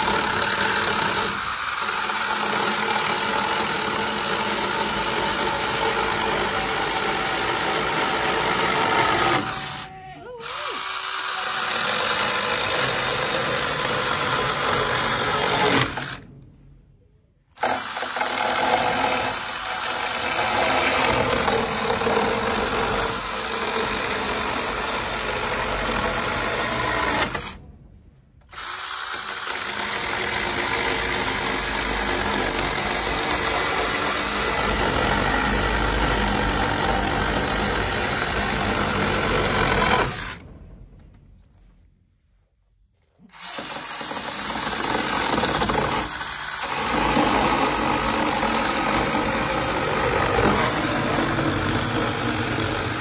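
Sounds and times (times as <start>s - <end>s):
electric chainsaw cutting wood: 0.0s - 16.3s, 17.6s - 27.6s, 28.5s - 40.5s, 43.3s - 53.0s.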